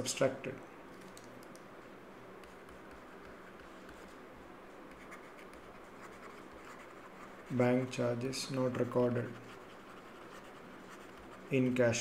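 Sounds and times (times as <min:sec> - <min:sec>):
low steady hiss: 0:00.0 - 0:12.0
stylus scratching while writing: 0:02.4 - 0:04.2, 0:04.8 - 0:07.7, 0:08.6 - 0:11.6.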